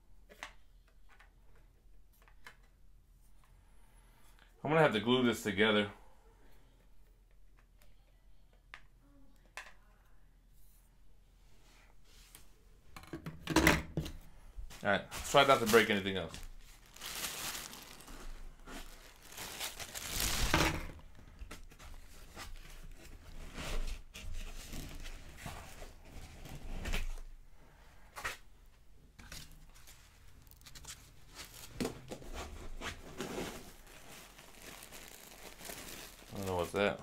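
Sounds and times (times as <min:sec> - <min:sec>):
plastic wrapping crinkling: 0:15.2 - 0:22.9, 0:29.2 - 0:37.0
packing foam pulled from cardboard box: 0:16.8 - 0:20.6, 0:32.3 - 0:36.9.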